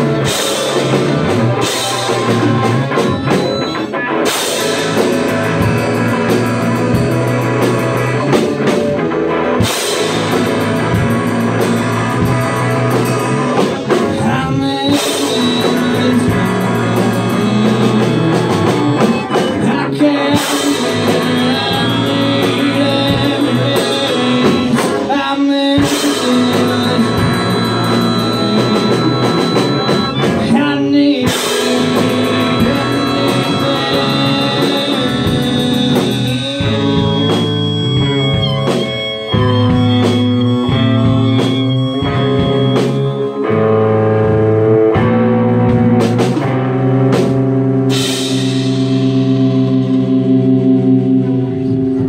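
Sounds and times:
person singing: 0:00.0 - 0:08.7, 0:09.4 - 0:46.7
drum kit: 0:00.0 - 0:52.0
electric guitars: 0:00.0 - 0:52.0
loud cymbal wash: 0:47.9 - 0:52.0.

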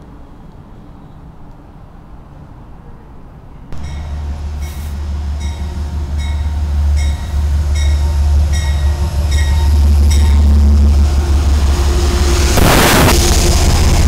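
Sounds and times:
diesel locomotive engine rumbling: 0:00.0 - 0:14.0
locomotive bell dinging: 0:03.7 - 0:10.9.

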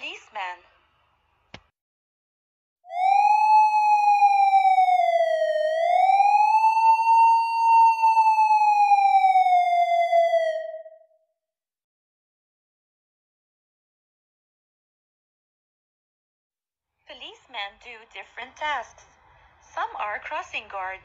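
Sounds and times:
police siren wailing: 0:02.9 - 0:11.2.

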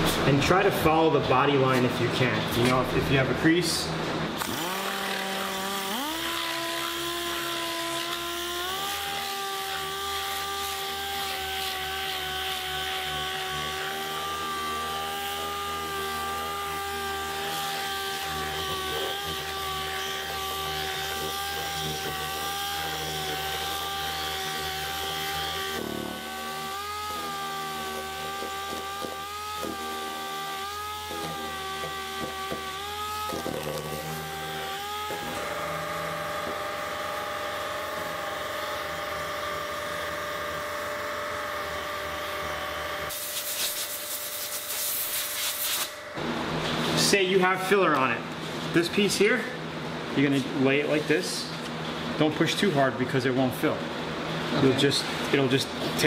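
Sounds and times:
air sander whining: 0:02.7 - 0:53.0.

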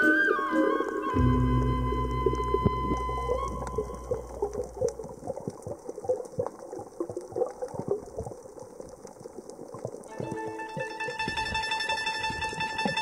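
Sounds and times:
background music: 0:00.0 - 0:04.8, 0:10.1 - 0:13.0
underwater clicking and crackling: 0:01.0 - 0:13.0
bubbly gurgles: 0:01.2 - 0:10.4.

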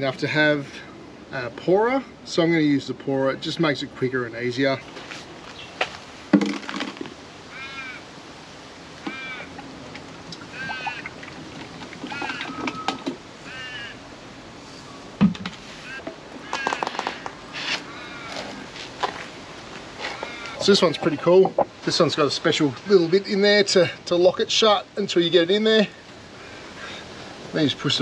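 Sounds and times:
plastic jug and bottle knocking: 0:06.3 - 0:07.1
bird calling: 0:07.5 - 0:08.1, 0:09.0 - 0:14.1, 0:14.7 - 0:18.8, 0:20.0 - 0:22.1.

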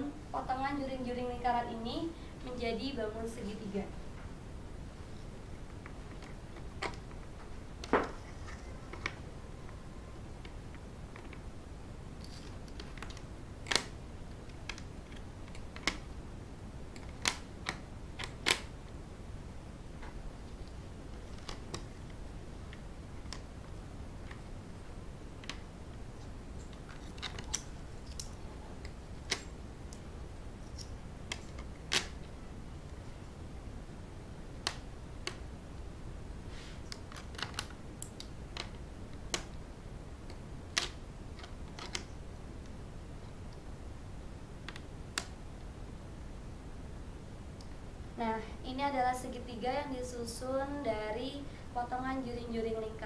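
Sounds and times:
low room noise: 0:00.0 - 0:53.0
small clicks and taps: 0:12.2 - 0:16.1, 0:34.6 - 0:35.5, 0:40.2 - 0:42.8.

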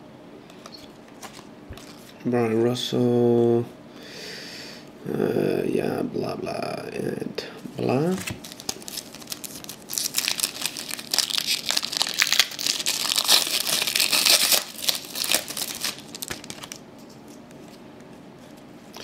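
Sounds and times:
foil wrapper crinkling and tearing: 0:08.0 - 0:16.8.

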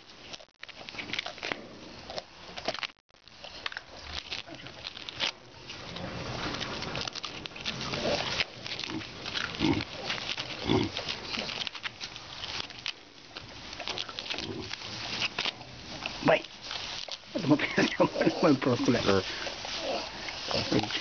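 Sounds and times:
crackling and rustling: 0:00.0 - 0:21.0
baboons grunting: 0:07.6 - 0:11.6, 0:17.3 - 0:21.0.

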